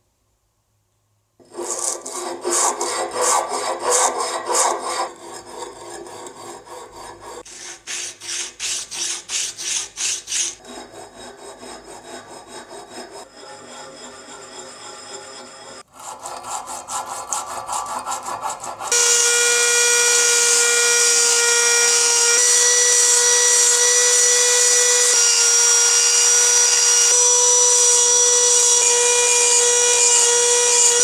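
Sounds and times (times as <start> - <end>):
hand tool scraping metal: 1.4 - 19.6.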